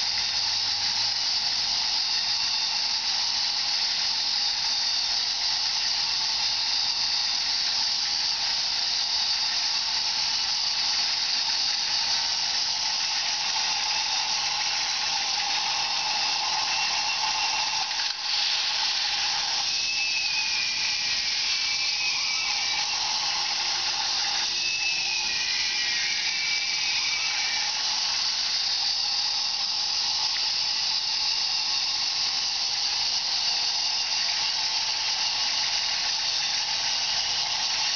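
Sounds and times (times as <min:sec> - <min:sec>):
motorized chain lift whirring: 0:00.0 - 0:37.9.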